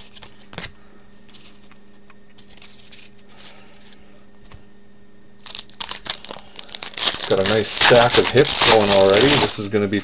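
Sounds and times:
steady low hum: 0:00.0 - 0:10.0
trading cards rustling: 0:01.3 - 0:04.0, 0:05.4 - 0:09.7.

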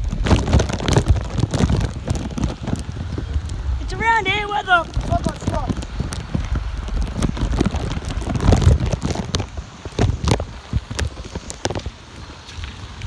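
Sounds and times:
crackles and taps: 0:00.0 - 0:03.7, 0:04.6 - 0:13.0
wind buffeting microphone: 0:00.0 - 0:13.0.

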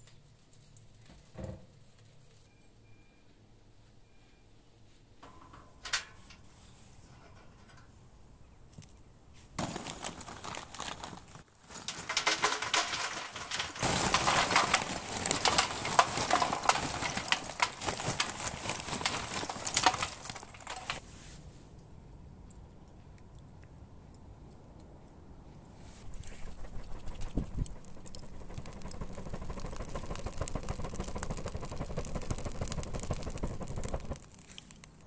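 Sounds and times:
charcoal clattering into metal grill: 0:05.2 - 0:06.5, 0:07.1 - 0:07.9, 0:09.6 - 0:21.0.

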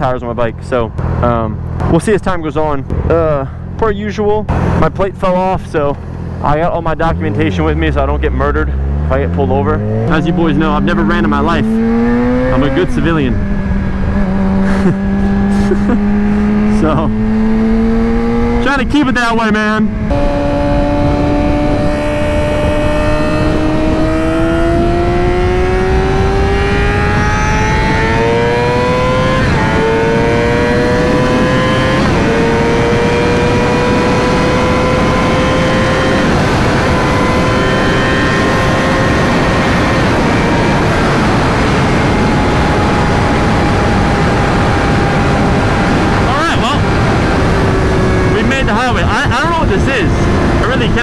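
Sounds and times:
motorcycle engine revving: 0:04.4 - 0:51.0
wind rushing over microphone: 0:04.4 - 0:51.0.

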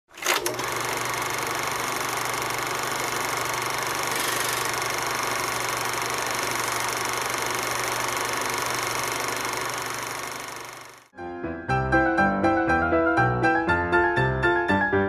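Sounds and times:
film projector clattering: 0:00.1 - 0:11.1.

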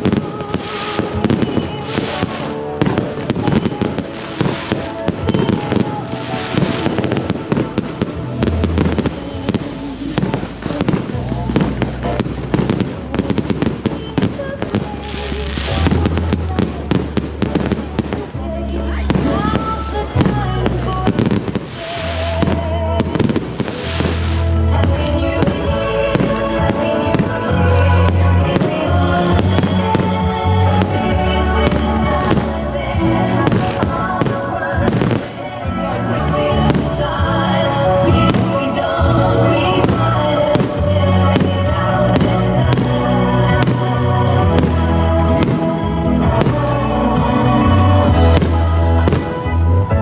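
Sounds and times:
fireworks bursting and crackling: 0:00.0 - 0:50.0
music playing: 0:00.0 - 0:50.0.

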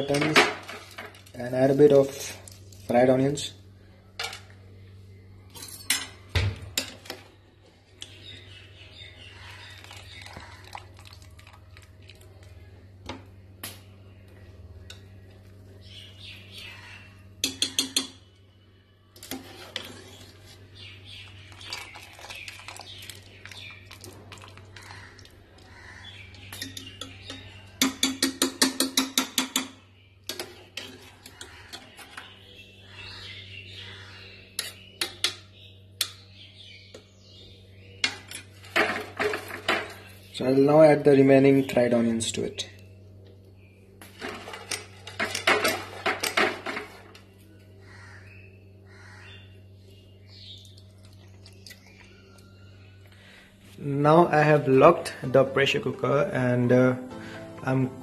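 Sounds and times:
metal spoon scraping a pot: 0:19.2 - 0:20.6, 0:30.3 - 0:32.3, 0:34.6 - 0:35.3.

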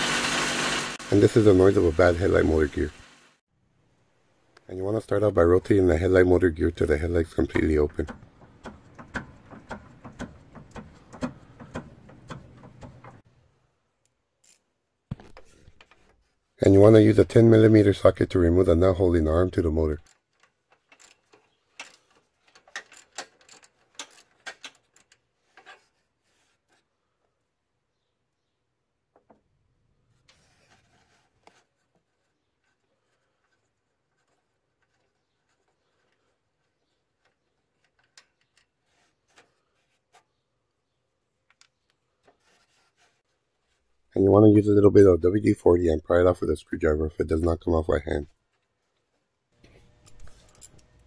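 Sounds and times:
faint scraping of parts: 0:20.0 - 0:27.3, 0:30.1 - 0:40.5, 0:41.6 - 0:43.9, 0:48.5 - 0:51.0.

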